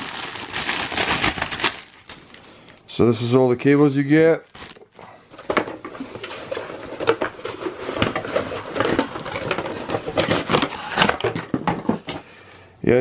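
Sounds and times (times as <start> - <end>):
cardboard rustling and scraping: 5.4 - 12.1.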